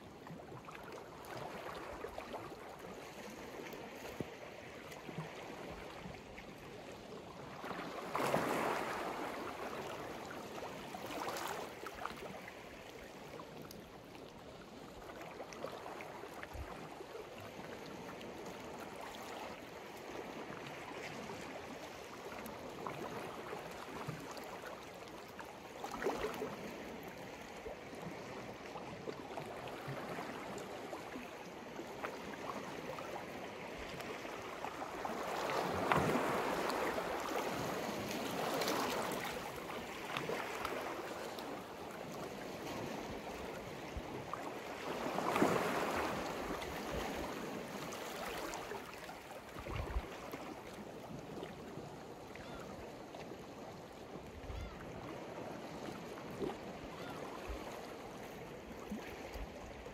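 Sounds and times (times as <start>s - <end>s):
sea waves washing onto shore: 31.9s - 51.4s.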